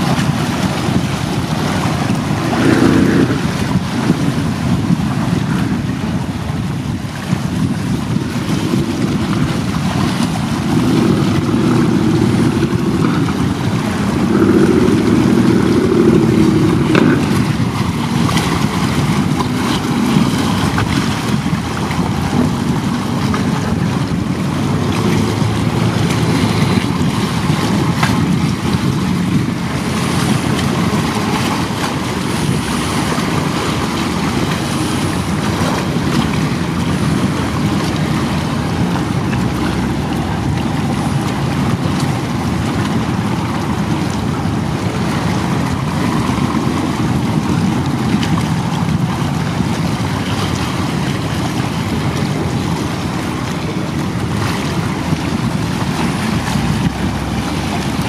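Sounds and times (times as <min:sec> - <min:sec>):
waves on choppy water: 0:00.0 - 0:58.0
wind on microphone: 0:00.0 - 0:58.0.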